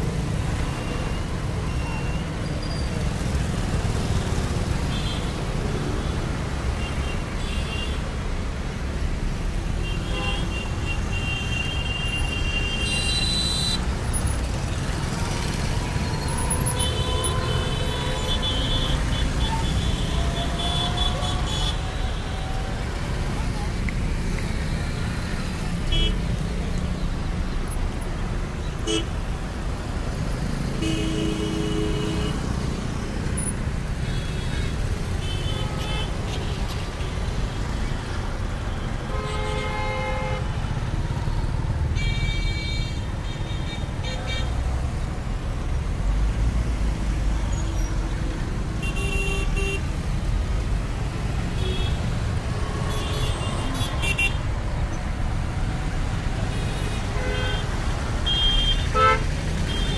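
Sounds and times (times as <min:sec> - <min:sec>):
road traffic rumble: 0:00.0 - 0:59.9
vehicles passing close by: 0:00.0 - 0:59.9
vehicle horns honking: 0:15.8 - 0:22.8, 0:39.0 - 0:40.5, 0:56.5 - 0:59.9.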